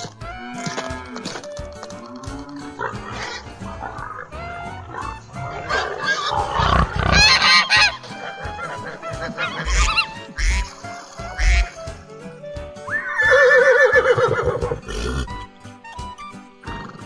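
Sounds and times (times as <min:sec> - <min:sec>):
geese honking: 0:02.9 - 0:11.8.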